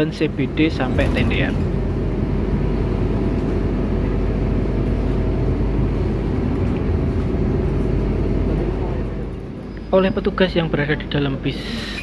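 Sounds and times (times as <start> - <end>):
bus engine drone: 0.0 - 12.0.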